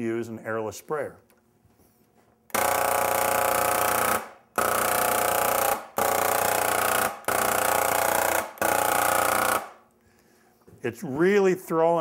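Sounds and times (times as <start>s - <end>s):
sprayer pump buzzing: 2.5s - 9.7s.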